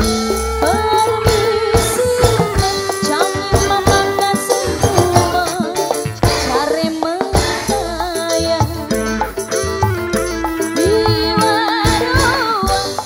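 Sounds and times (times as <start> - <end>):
drum strokes: 0.0 - 13.0.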